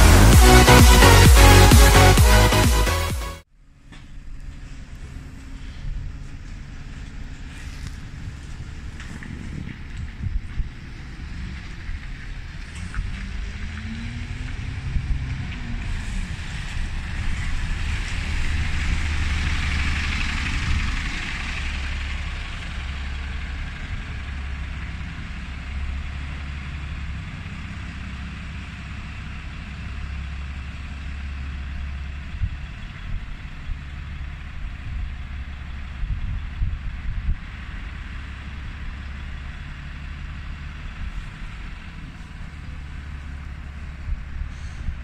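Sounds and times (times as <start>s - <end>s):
bus engine rumble: 0.0s - 45.0s
road hiss: 37.5s - 45.0s.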